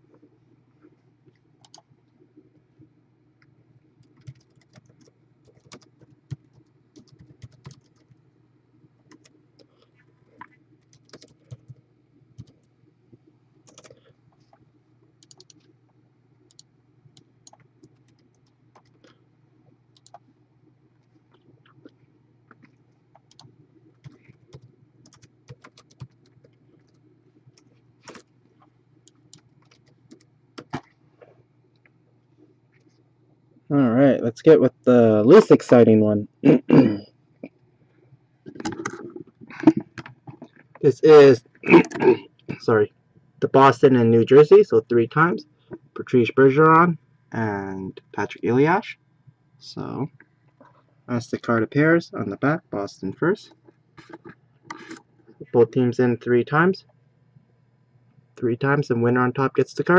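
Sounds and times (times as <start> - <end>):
steady low hum: 0.0 - 59.9
computer keys clicking: 1.6 - 1.9, 4.0 - 8.2, 9.1 - 9.7, 10.8 - 11.8, 12.4 - 12.7, 13.6 - 14.6, 15.2 - 15.7, 16.5 - 19.2, 19.9 - 20.2, 22.5 - 28.3, 29.0 - 30.9.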